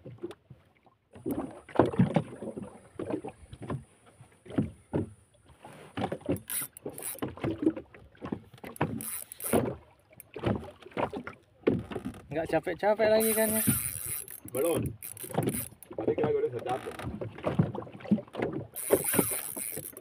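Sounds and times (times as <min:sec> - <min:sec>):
knocks and thuds on boat: 0:01.3 - 0:05.2, 0:07.0 - 0:12.6, 0:13.7 - 0:18.8.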